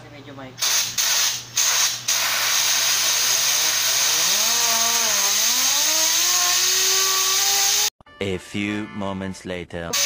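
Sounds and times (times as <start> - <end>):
compressed air hissing: 0.6 - 7.9
spinning air tool whine: 0.6 - 7.9.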